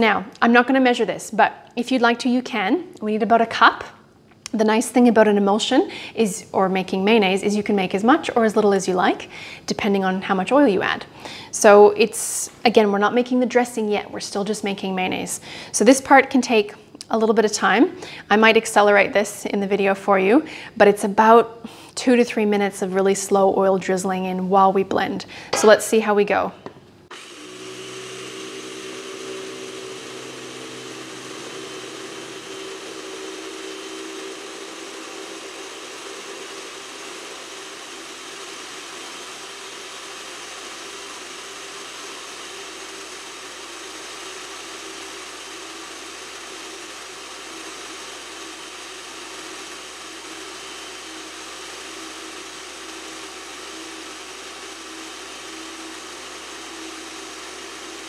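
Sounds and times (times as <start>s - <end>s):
food processor motor running: 27.1s - 58.0s.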